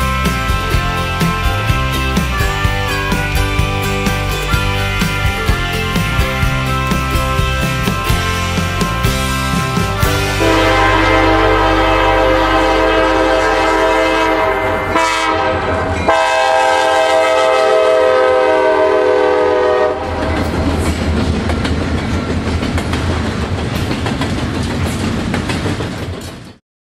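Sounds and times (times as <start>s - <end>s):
train wheels clicking over rails: 0.0s - 13.4s, 18.9s - 26.6s
locomotive engine rumbling: 0.0s - 26.6s
locomotive air horn: 10.0s - 20.3s.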